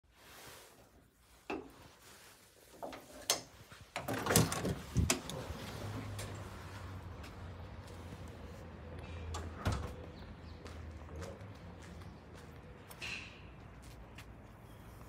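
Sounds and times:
metallic knocks and clunks: 2.8 - 5.4.

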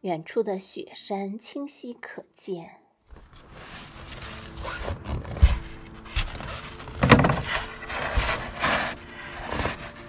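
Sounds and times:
snow shovel scraping snow: 3.4 - 10.0.

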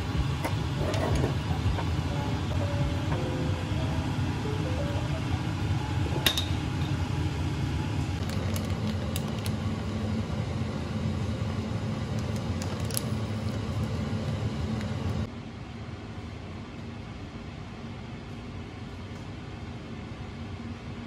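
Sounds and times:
low kitchen hum: 0.0 - 21.0
plastic bag crinkling: 8.2 - 9.6.

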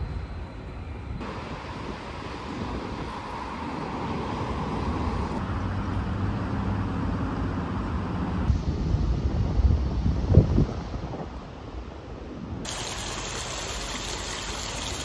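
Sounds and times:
rumble of road traffic: 0.0 - 15.0.

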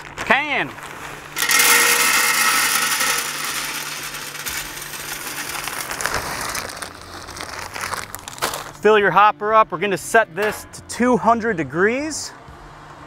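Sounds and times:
wood pellets pouring rattle: 1.4 - 8.6.

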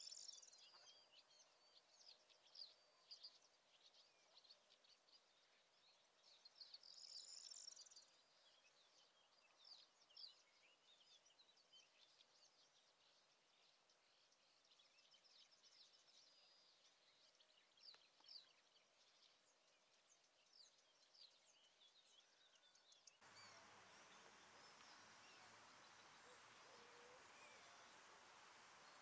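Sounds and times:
songbirds chirping and trilling: 0.0 - 29.0
steady hiss: 23.2 - 29.0.

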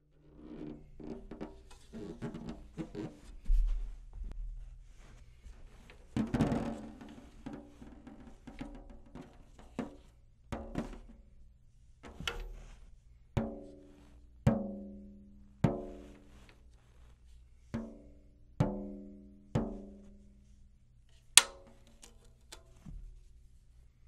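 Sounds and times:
fingertip taps on tom drum head: 5.8 - 11.2, 12.1 - 12.8, 17.8 - 20.0, 21.4 - 22.1.

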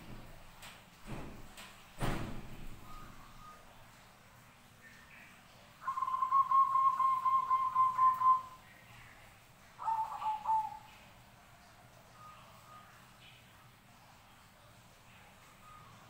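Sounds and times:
dove cooing: 5.8 - 8.6, 9.8 - 11.1.

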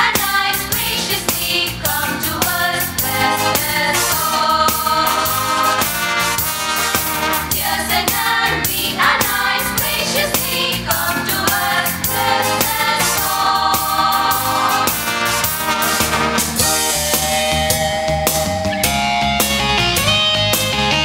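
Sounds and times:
choir of women singing: 0.0 - 5.9, 7.4 - 15.2, 16.6 - 18.7
guitar: 0.0 - 21.0
steady beat: 0.2 - 20.7.

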